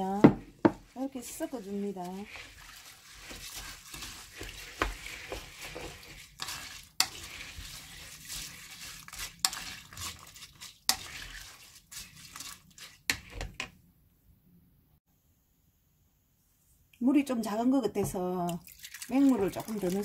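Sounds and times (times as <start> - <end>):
wooden spoon swishing wet rice: 0.8 - 13.5, 18.6 - 20.0.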